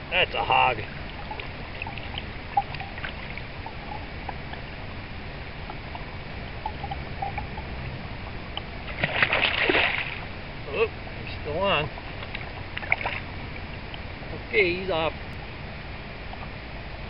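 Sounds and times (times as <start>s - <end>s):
stream water flowing: 0.0s - 17.0s
water ticks and drips: 0.1s - 10.4s, 11.2s - 14.1s
water splash: 5.5s - 10.3s, 12.0s - 13.3s.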